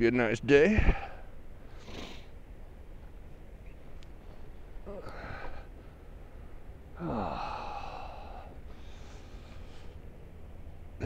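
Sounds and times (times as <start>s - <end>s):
man sighing: 4.8s - 5.7s, 7.0s - 8.6s.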